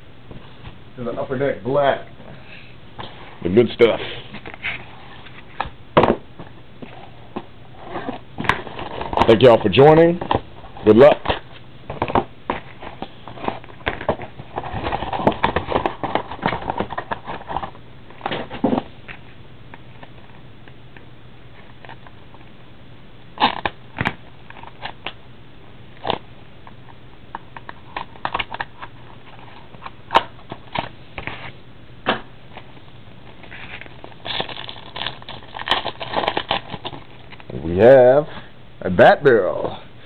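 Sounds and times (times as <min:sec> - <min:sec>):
packaging crinkling and rustling: 0:07.8 - 0:20.3, 0:32.5 - 0:37.5.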